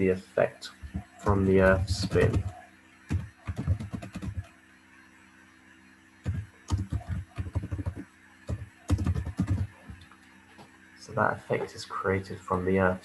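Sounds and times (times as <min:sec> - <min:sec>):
typing on computer keyboard: 0:02.0 - 0:02.5, 0:03.1 - 0:04.5, 0:06.3 - 0:10.0.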